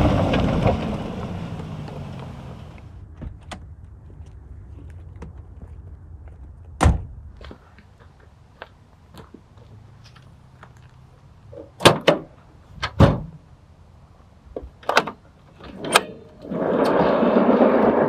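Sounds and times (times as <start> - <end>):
heavy drawer rolling out: 15.7 - 18.0.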